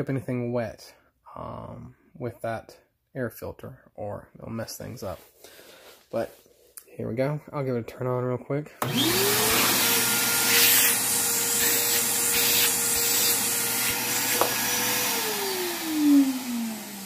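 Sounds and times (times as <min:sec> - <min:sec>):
shop vac motor whine: 0:08.8 - 0:17.0.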